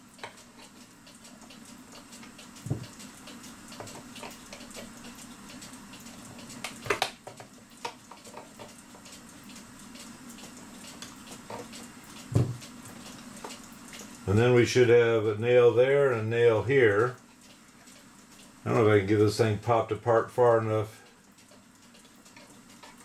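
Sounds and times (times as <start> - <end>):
metal tool knocking on wooden case: 12.4 - 12.6.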